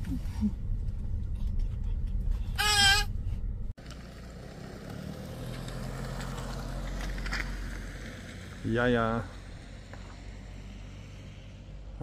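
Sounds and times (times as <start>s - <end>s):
car cabin rumble: 0.0s - 4.0s
low outdoor hum: 0.0s - 12.0s
child squealing: 2.5s - 3.1s.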